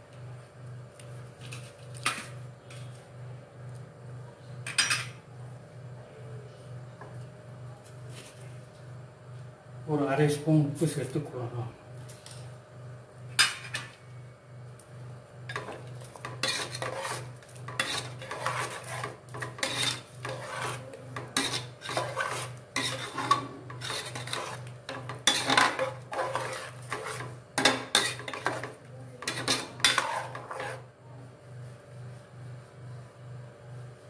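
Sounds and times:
ladle scraping a pot: 15.5 - 30.9.

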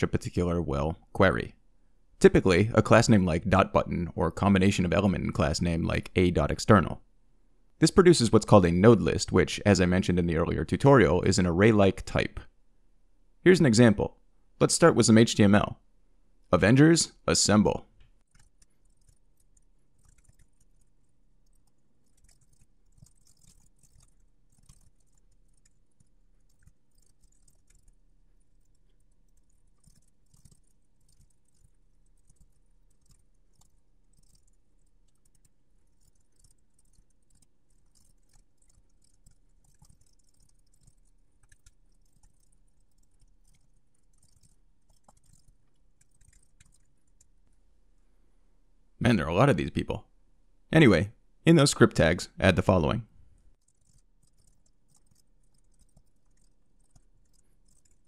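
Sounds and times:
faint steady hum: 0.0 - 58.0
typing on computer keyboard: 18.2 - 47.3, 53.6 - 58.0.

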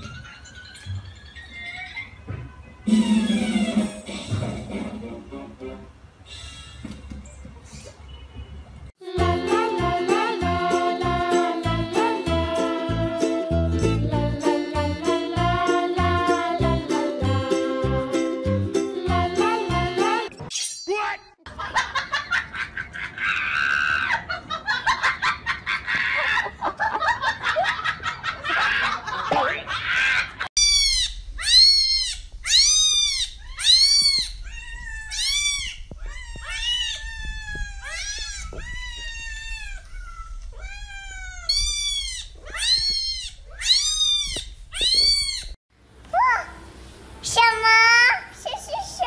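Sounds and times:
cat meowing: 30.6 - 45.6.

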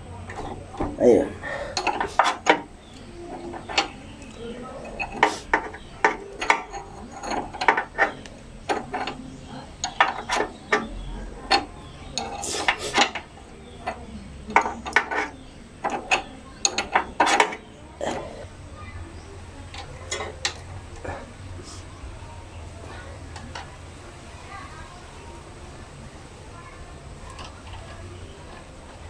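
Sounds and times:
wrench clicking on metal bolt: 1.8 - 9.2.

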